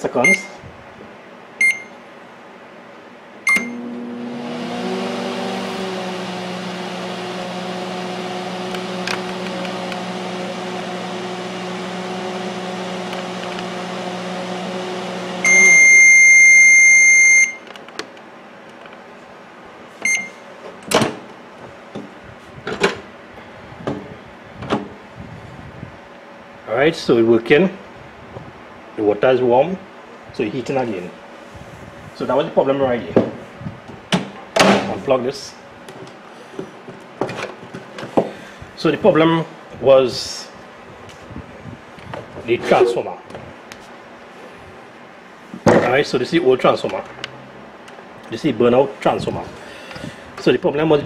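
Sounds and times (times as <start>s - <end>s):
keypad beep: 0.2s - 0.5s, 1.6s - 1.9s, 3.5s - 3.8s, 20.0s - 20.3s
long loud beep: 0.2s - 0.5s, 1.6s - 2.0s, 3.5s - 3.8s, 15.4s - 17.6s, 20.0s - 20.4s
microwave humming: 3.2s - 22.0s.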